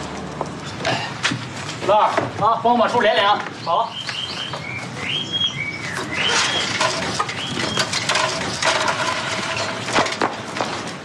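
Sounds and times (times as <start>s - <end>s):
high whistling chirps: 3.9s - 8.0s.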